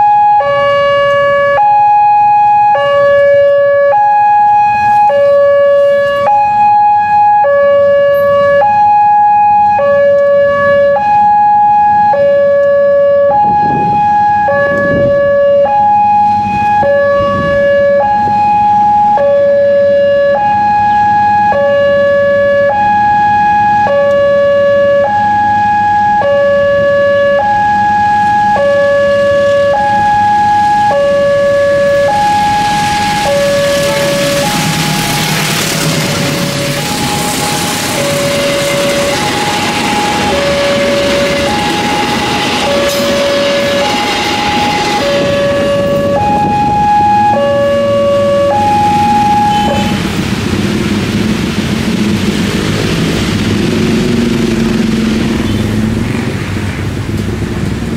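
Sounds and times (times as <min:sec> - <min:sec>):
two-tone level-crossing alarm: 0:00.0 - 0:50.2
rushing noise: 0:29.9 - 0:57.9.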